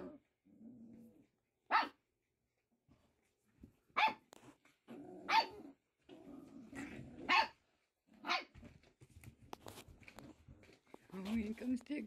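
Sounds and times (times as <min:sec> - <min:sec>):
puppy growling: 0:00.0 - 0:01.4, 0:04.8 - 0:08.3.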